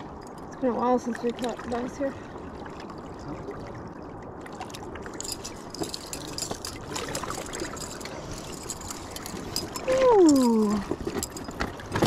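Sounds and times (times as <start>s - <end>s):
water lapping among rocks: 0.0s - 12.0s
metal chain clinking: 5.1s - 12.0s.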